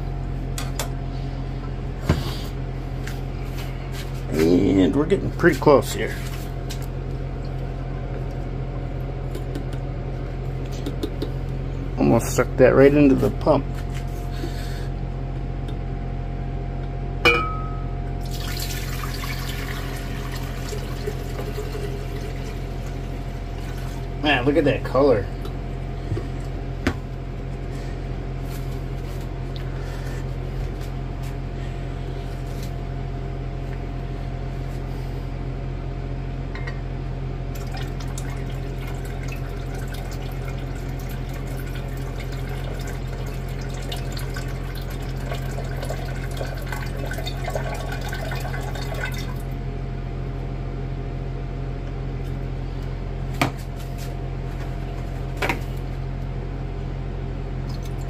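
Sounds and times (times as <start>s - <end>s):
vacuum pump humming: 0.0s - 58.0s
liquid gurgling into flask: 18.2s - 24.1s, 37.5s - 49.5s.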